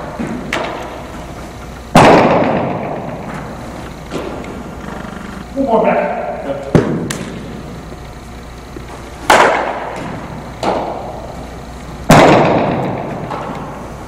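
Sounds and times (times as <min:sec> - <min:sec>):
baseball impact cracks with echo: 0:00.0 - 0:04.7, 0:06.6 - 0:07.7, 0:09.2 - 0:13.8.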